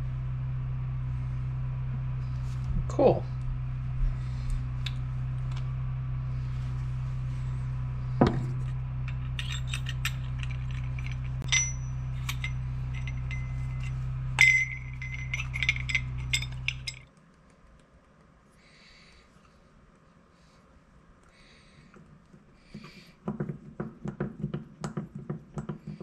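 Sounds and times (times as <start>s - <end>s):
steady low hum: 0.0s - 26.0s
metallic ring: 8.2s - 17.0s
metal parts clinking: 8.2s - 17.1s.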